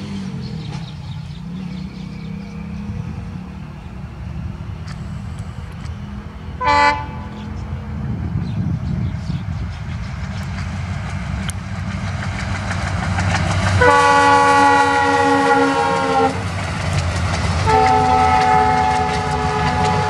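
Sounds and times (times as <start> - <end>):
diesel locomotive engine rumble: 0.0 - 20.0
locomotive horn blast: 6.0 - 7.6, 13.8 - 16.5, 17.6 - 20.0.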